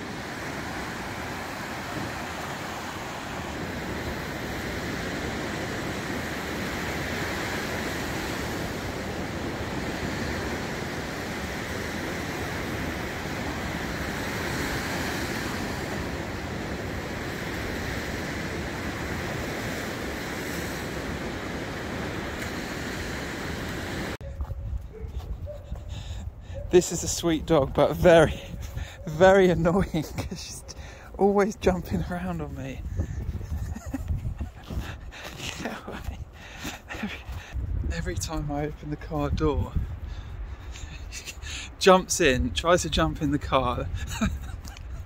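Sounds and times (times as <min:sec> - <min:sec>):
waves washing up a beach: 0:00.0 - 0:24.2.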